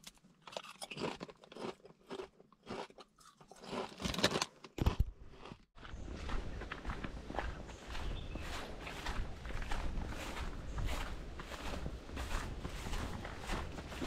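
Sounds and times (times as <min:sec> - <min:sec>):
potato chips crunching: 0:00.0 - 0:05.5.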